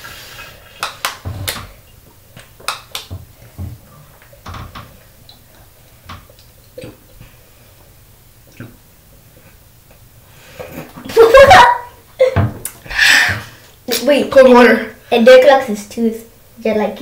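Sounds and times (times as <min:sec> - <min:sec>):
person gulping water: 0:05.6 - 0:07.4, 0:08.4 - 0:10.0.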